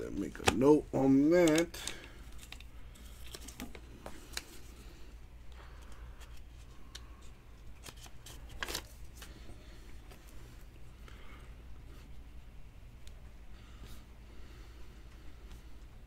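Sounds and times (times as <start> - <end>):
cards rustling: 0.0 - 11.2
low steady hum: 0.0 - 16.0
plastic card holders clicking: 1.4 - 2.1.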